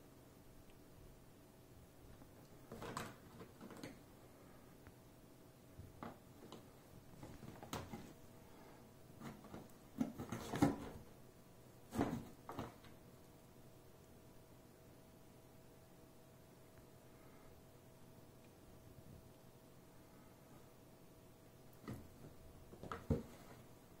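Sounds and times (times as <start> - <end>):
paws thumping and scraping cardboard: 22.7 - 23.6.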